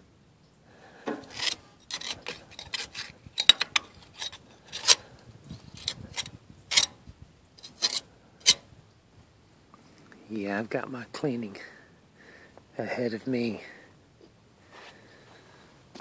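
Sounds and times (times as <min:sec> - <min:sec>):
hand scraper scraping dirt: 0:01.1 - 0:07.0, 0:07.6 - 0:08.7.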